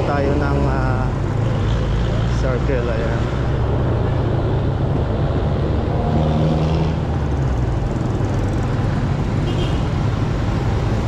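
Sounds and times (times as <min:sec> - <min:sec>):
road noise: 0:00.0 - 0:11.0.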